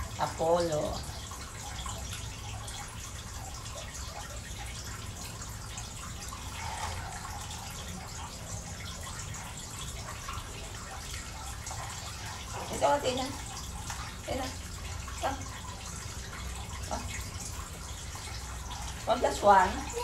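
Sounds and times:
water trickling: 0.0s - 20.0s.

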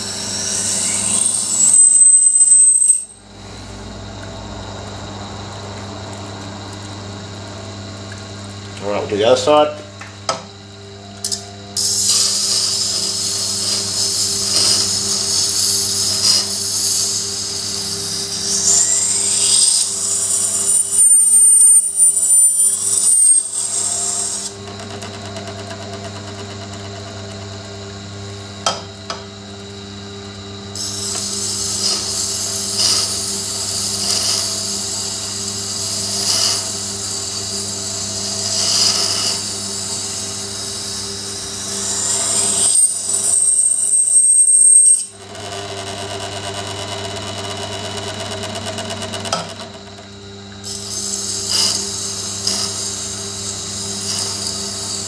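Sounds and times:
sharpener motor humming: 0.0s - 3.3s, 11.2s - 24.7s, 30.7s - 45.2s, 50.5s - 55.0s.

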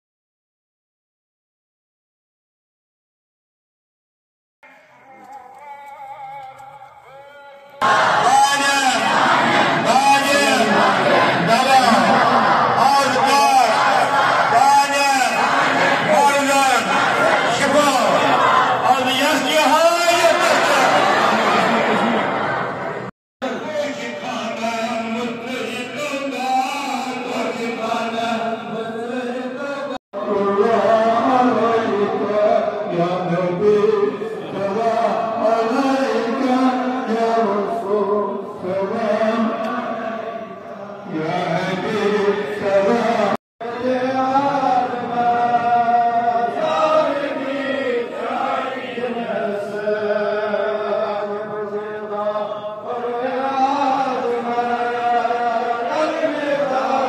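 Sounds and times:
men chanting: 4.9s - 22.5s, 23.9s - 57.0s
voices chanting: 7.8s - 23.1s.

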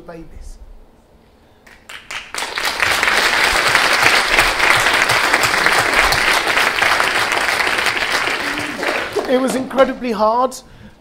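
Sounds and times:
audience applauding: 1.7s - 10.1s.

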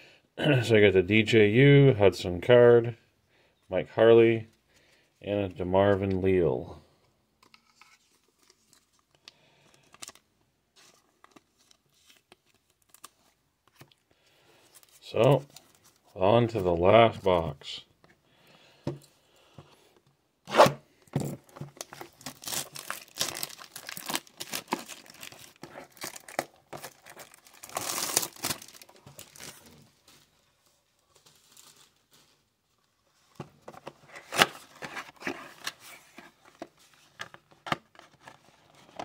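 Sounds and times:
foil packs crinkling: 21.4s - 30.3s
cardboard box tearing: 21.8s - 29.6s.

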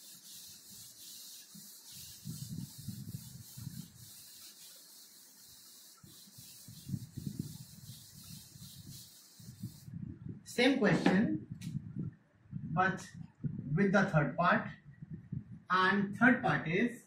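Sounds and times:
eraser rubbing on whiteboard: 0.0s - 9.9s.

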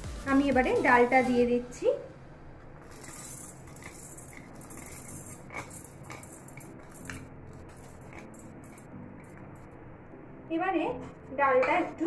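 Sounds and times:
spatula scraping a pan: 2.8s - 8.9s.

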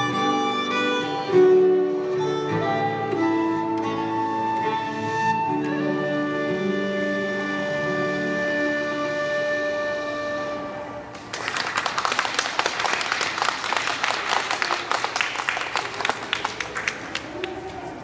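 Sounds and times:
audience applause: 11.2s - 17.9s.

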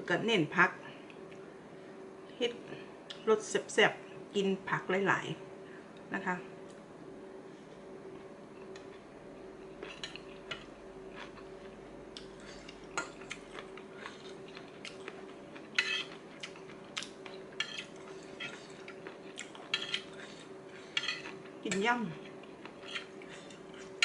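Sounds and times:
cutlery clinking on a plate: 15.8s - 16.2s, 17.6s - 18.7s, 19.7s - 20.1s, 20.9s - 21.8s.

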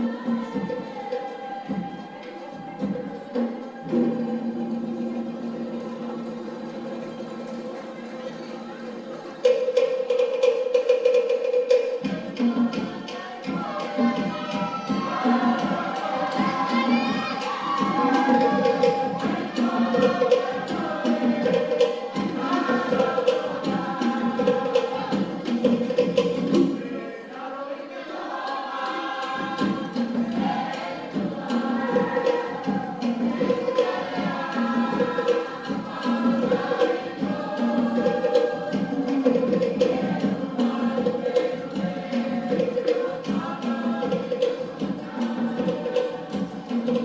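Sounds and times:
group singing in chorus: 0.0s - 47.0s
steady drum beat: 8.8s - 26.9s, 28.6s - 47.0s.

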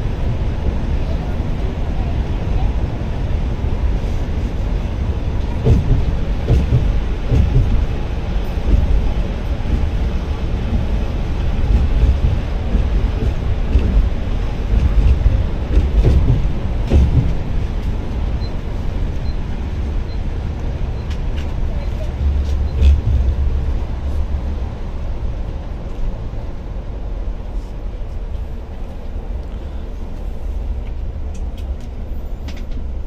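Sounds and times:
bus engine and road rumble: 0.0s - 33.0s
knocks and rattles: 5.6s - 7.9s, 10.7s - 17.5s.

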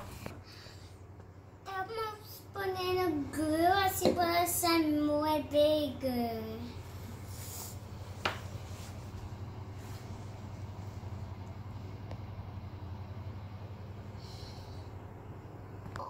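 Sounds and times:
girl singing wordless tune: 1.6s - 6.8s.

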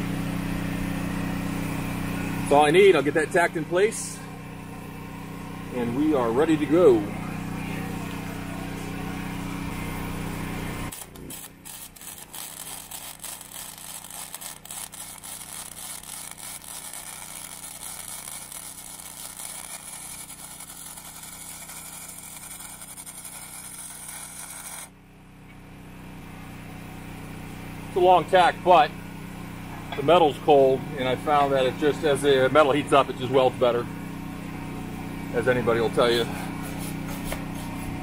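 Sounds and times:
machine hum: 0.0s - 38.0s
welding arc crackling: 9.6s - 25.0s.

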